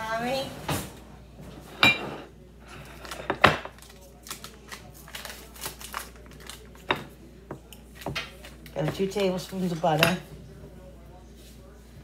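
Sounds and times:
paper wrapper crinkling: 3.8s - 6.7s.

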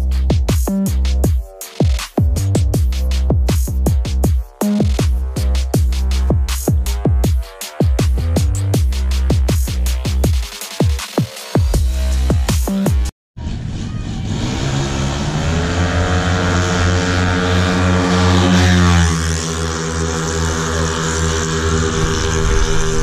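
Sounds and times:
scooter engines at full throttle: 13.6s - 23.0s.

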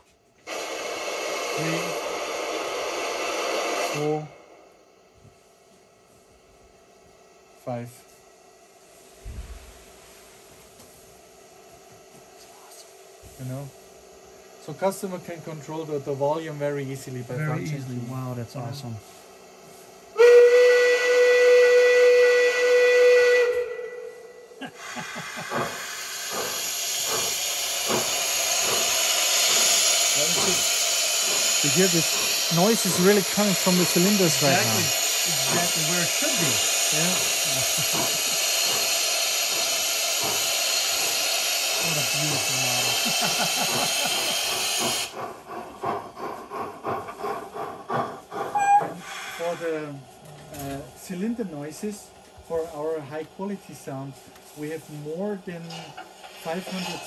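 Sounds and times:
steam hissing with soft chuffs: 0.0s - 57.0s
steam whistle blast: 20.2s - 24.6s, 48.5s - 49.6s
rhythmic exhaust chuffs: 24.6s - 50.2s.

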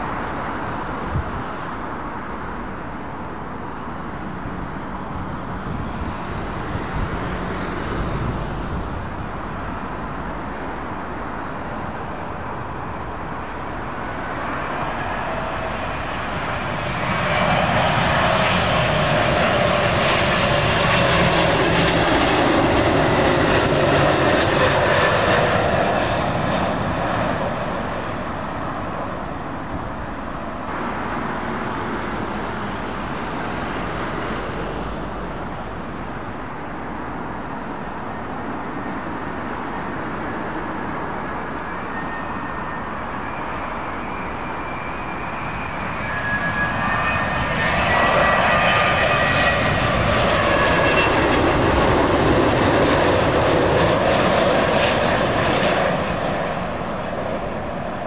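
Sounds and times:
jet engines of landing plane: 0.0s - 58.0s
jet whine dropping in pitch: 38.1s - 58.0s.

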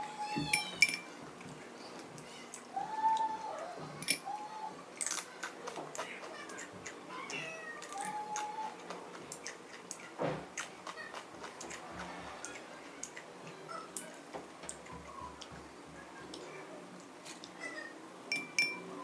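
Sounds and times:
spoon clinking glass bowl: 0.5s - 1.1s, 18.3s - 18.9s
crunching tortilla chips: 4.9s - 13.3s.

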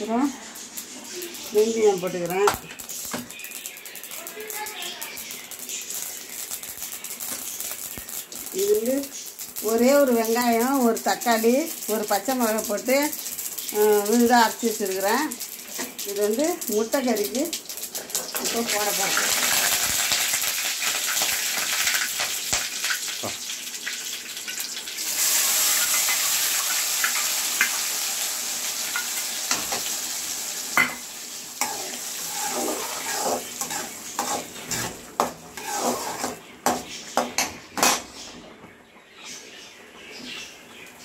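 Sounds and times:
oil sizzling in a pan: 0.0s - 38.4s
spoon scraping against pan: 31.6s - 38.1s.

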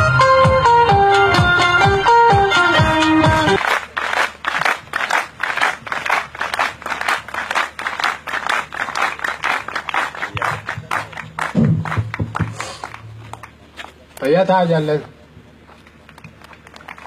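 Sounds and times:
music: 0.0s - 3.6s
crowd clapping: 3.3s - 14.3s, 15.7s - 17.0s.

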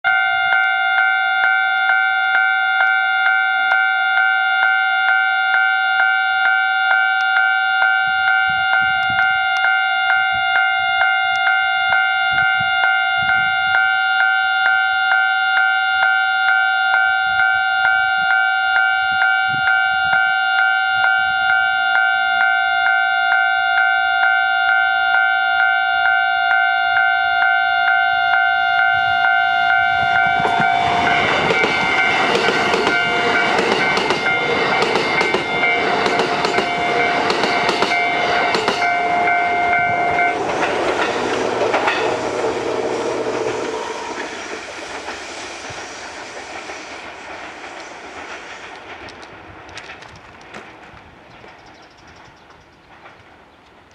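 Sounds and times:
level-crossing alarm dinging: 0.1s - 44.4s
train rushing past: 28.7s - 53.5s
train wheels clattering: 30.0s - 53.9s.

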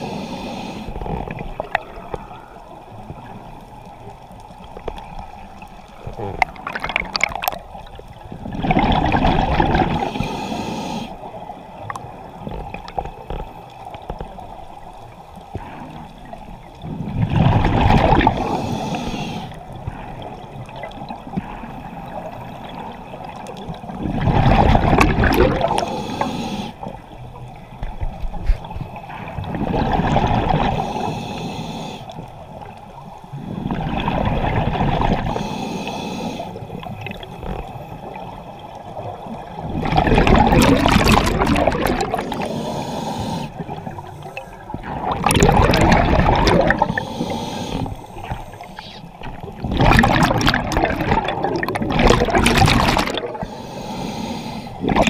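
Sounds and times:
bubbling exhalations through regulator: 6.0s - 7.6s, 8.4s - 10.1s, 17.1s - 18.6s, 24.0s - 25.9s, 39.7s - 42.5s, 44.8s - 53.5s, 54.8s - 55.0s.

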